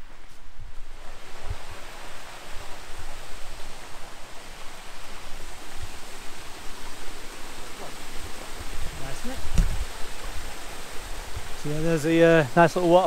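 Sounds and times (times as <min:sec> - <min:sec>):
waterfall rushing: 0:00.9 - 0:13.0.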